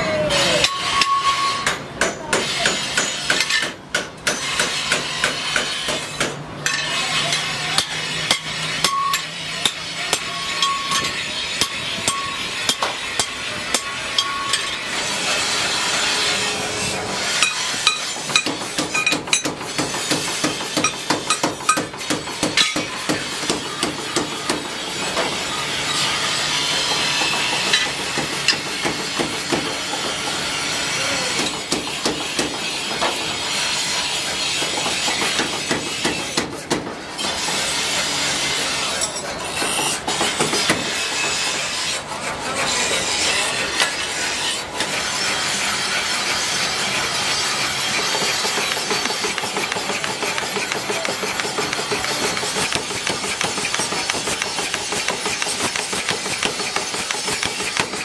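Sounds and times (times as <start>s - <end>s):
mechanical power hammer: 0.6s - 41.6s, 43.5s - 58.0s
tools clattering: 17.4s - 19.7s.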